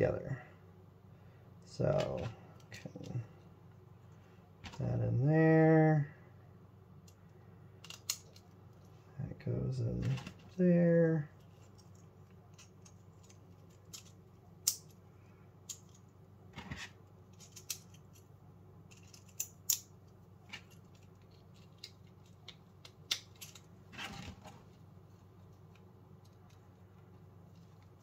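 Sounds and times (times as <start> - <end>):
plastic parts clicking into place: 7.8 - 8.5
plastic parts scraping: 10.0 - 10.6, 15.7 - 18.2, 20.4 - 26.8.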